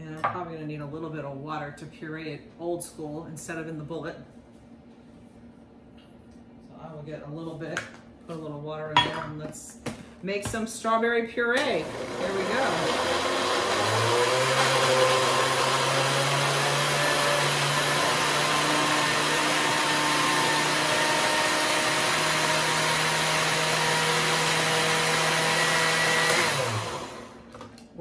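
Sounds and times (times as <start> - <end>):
blender motor whirring: 11.6 - 27.6.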